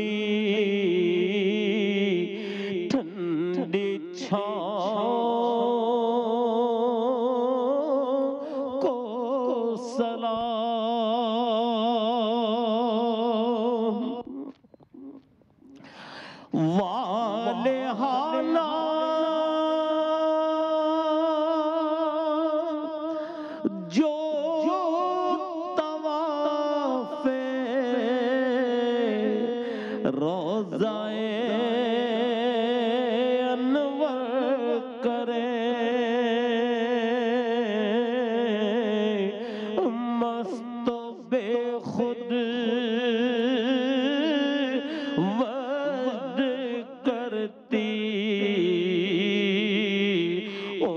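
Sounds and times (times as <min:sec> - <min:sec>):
man singing with vibrato: 0:00.0 - 0:50.9.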